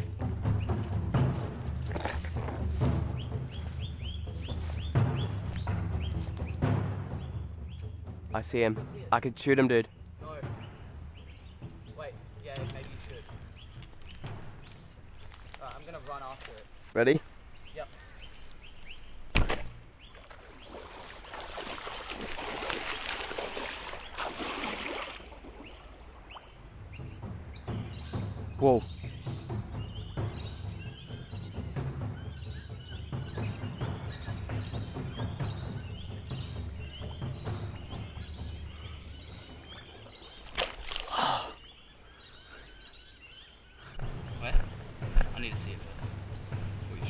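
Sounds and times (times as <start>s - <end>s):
wind rumble: 0.0s - 40.5s, 43.7s - 47.0s
birds chirping: 0.0s - 47.0s
splashing through shallow water: 1.2s - 3.0s, 19.4s - 26.6s, 38.0s - 41.8s.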